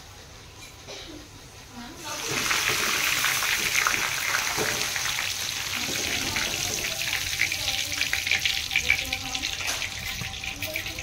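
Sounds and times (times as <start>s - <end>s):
rice deep-frying in hot oil: 1.6s - 11.0s
wire skimmer stirring: 5.7s - 11.0s.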